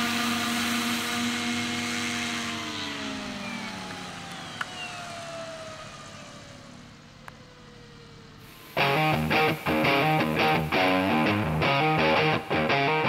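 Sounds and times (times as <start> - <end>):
model helicopter rotors spinning down: 0.0 - 7.2.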